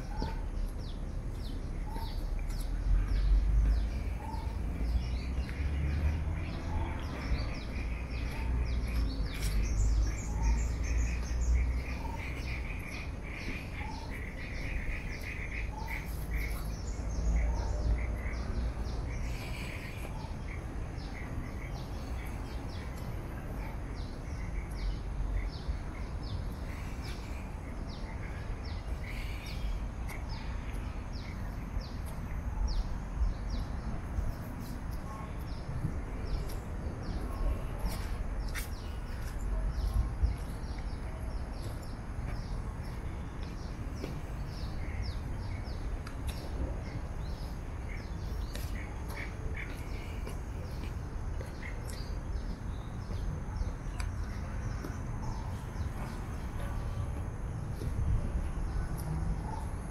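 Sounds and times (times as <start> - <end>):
birds chirping: 0.0 - 57.9.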